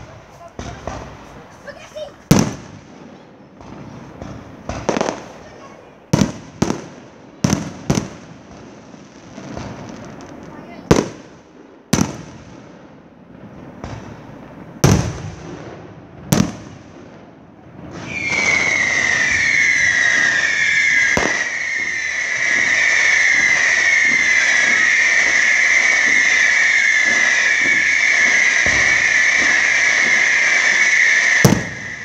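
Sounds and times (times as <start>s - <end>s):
fireworks bangs: 0.0s - 32.0s
fireworks shrill whistling: 17.8s - 32.0s.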